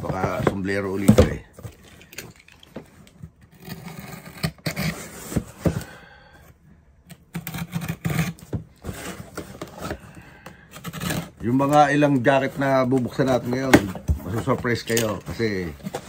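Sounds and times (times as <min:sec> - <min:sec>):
cardboard box scraping and rustling: 0:03.6 - 0:05.8, 0:07.9 - 0:10.1.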